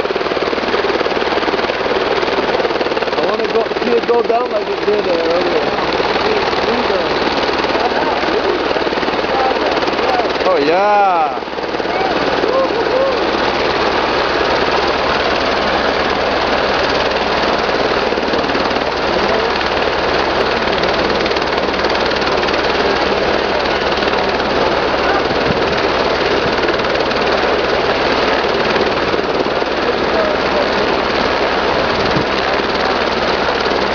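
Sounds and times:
helicopter turbine and rotor: 0.0s - 33.9s.

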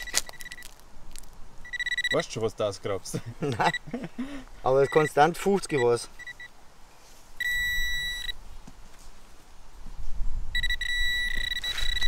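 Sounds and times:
pinpointer high beep: 0.0s - 0.7s, 1.6s - 2.2s, 4.8s - 6.5s, 7.4s - 8.4s, 10.6s - 12.0s.

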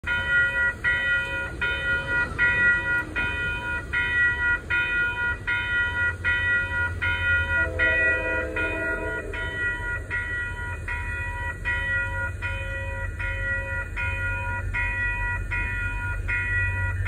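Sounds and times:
crossing warning bell ringing: 0.0s - 17.0s
locomotive air horn: 6.8s - 10.7s.

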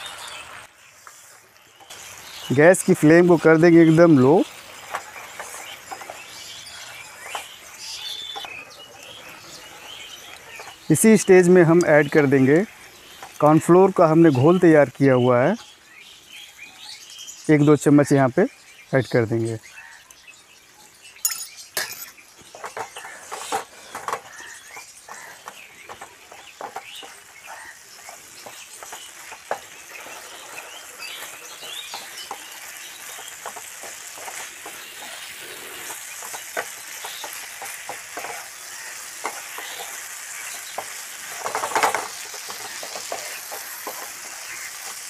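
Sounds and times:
sauce sizzling: 0.0s - 17.5s, 24.3s - 45.0s
wooden spatula scraping a pan: 4.5s - 7.6s, 22.5s - 45.0s.

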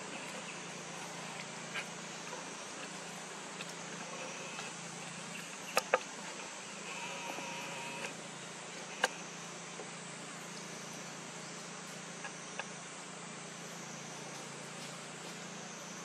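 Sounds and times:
insect drone: 0.0s - 16.0s
low steady hum: 0.0s - 16.0s
faint ticks: 12.2s - 12.7s.

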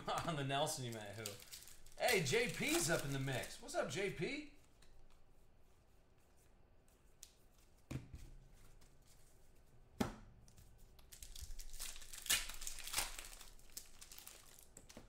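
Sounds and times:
foil card packs crinkling: 0.1s - 3.8s, 11.1s - 15.0s.

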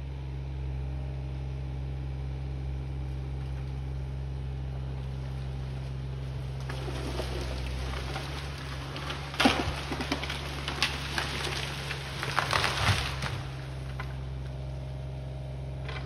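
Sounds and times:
excavator engine running: 0.0s - 16.0s
tree cracking and splintering: 5.1s - 14.9s, 15.8s - 16.0s
branches crashing: 5.2s - 14.9s.

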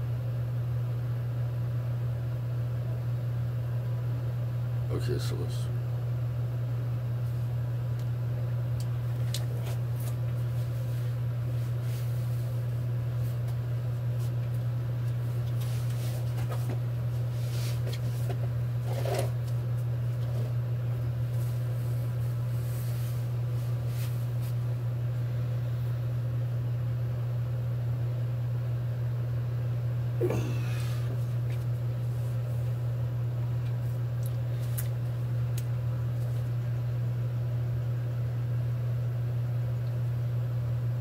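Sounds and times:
steady low hum: 0.0s - 41.0s
faint clicks and handling noises: 8.8s - 10.4s.

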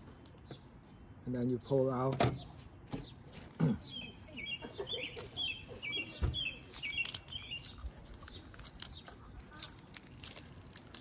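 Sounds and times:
small bird chirping: 0.3s - 11.0s
crawfish shells cracking: 6.4s - 11.0s.

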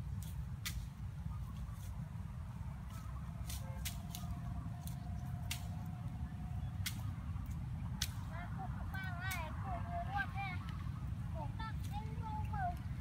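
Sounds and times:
twigs clicking and snapping: 0.2s - 2.0s, 2.8s - 9.6s.

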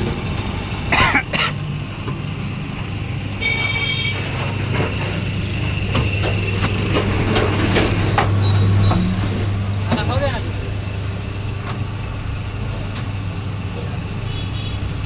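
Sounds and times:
machine knocks and clatter: 3.7s - 10.7s.

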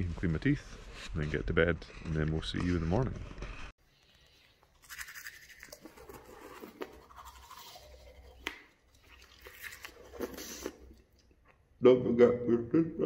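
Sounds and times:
toothbrush scrubbing teeth: 3.9s - 11.1s.

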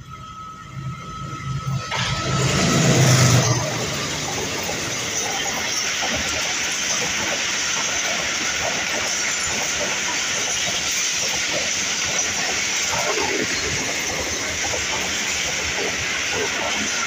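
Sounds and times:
train wheels rushing on rails: 0.0s - 17.0s.

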